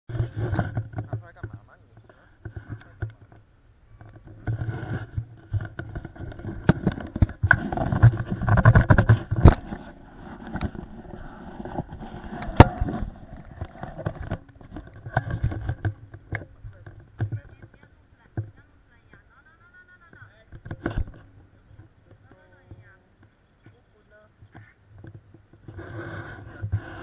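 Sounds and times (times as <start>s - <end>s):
handling knocks and scrapes: 4.0s - 18.6s.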